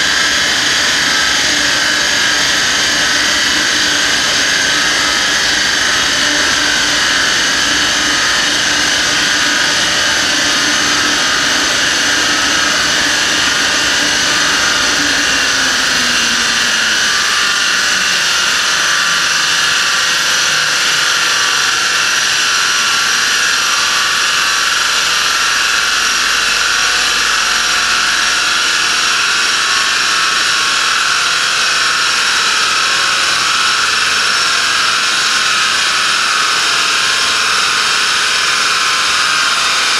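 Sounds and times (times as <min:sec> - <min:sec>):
low hum dropping in pitch: 0:00.0 - 0:18.8
large cooling fan rushing: 0:00.0 - 0:39.9.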